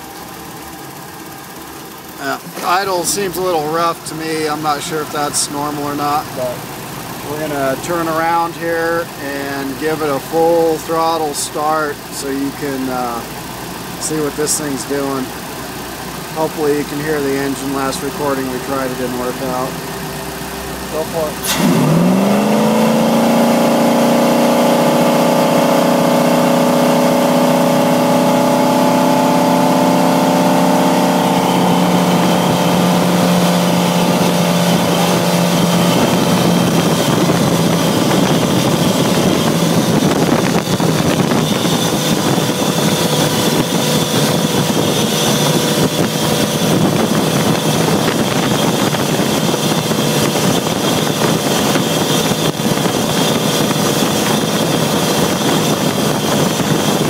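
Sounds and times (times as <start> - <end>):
boat engine at full throttle: 0.0 - 57.0.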